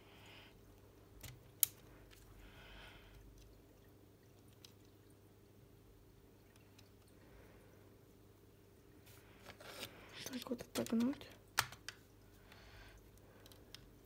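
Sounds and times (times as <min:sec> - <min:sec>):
faint room hum: 0:00.0 - 0:14.0
plastic parts clicking: 0:10.6 - 0:12.0
sharp plastic snap: 0:10.8 - 0:12.0.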